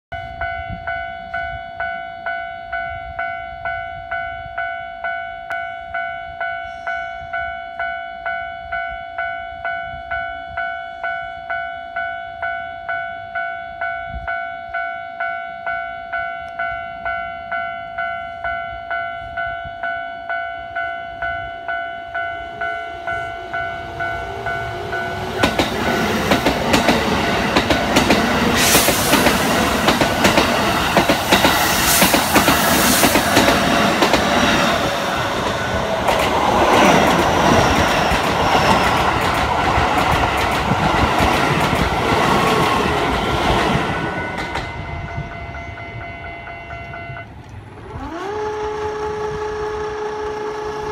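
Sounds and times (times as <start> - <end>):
level crossing warning bell: 0.1 - 48.2
electric train inverter whine: 0.2 - 50.9
train wheels clattering over rail joints: 23.8 - 44.8.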